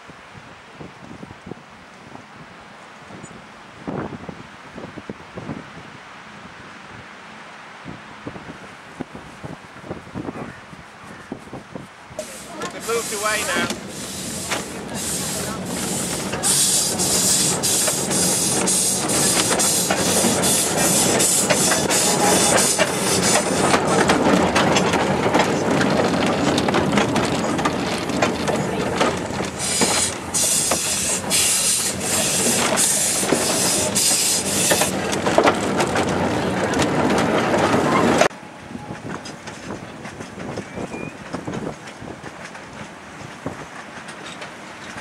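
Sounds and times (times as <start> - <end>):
carriage wheels clattering on rails: 12.2 - 45.0
steam locomotive exhaust beats: 12.2 - 45.0.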